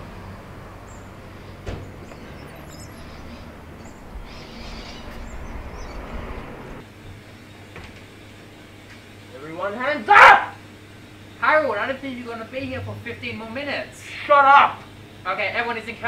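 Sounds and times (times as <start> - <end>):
low engine hum: 0.0 - 9.2, 11.3 - 14.0.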